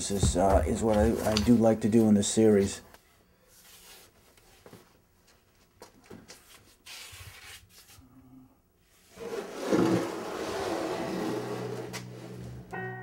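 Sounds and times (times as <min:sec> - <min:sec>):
canvases rubbing and knocking: 0:00.0 - 0:02.1, 0:09.1 - 0:12.6
canvas scraping: 0:09.1 - 0:12.6.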